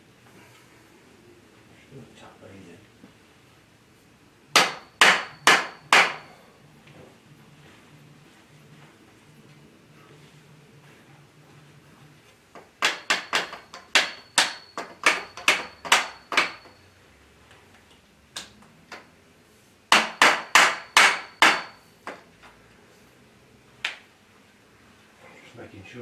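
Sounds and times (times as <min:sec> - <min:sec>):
metal tubes knocking: 0:12.6 - 0:16.8.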